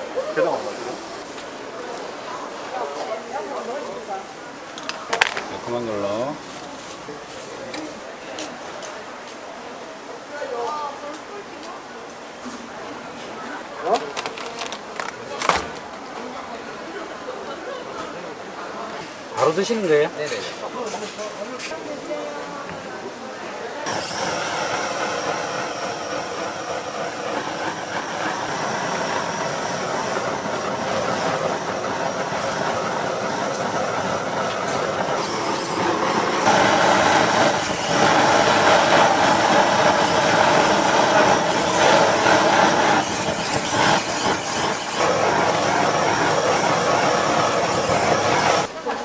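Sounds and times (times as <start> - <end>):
food cooking hiss: 0.0 - 9.0, 23.8 - 48.7.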